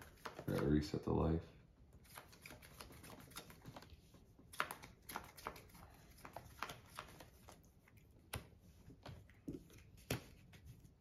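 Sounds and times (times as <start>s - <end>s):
cards shuffling clicks: 0.0s - 0.8s, 2.0s - 7.6s.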